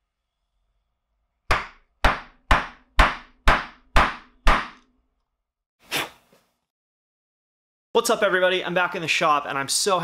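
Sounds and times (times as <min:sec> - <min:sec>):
mallet striking wood chisel: 0:01.5 - 0:04.9.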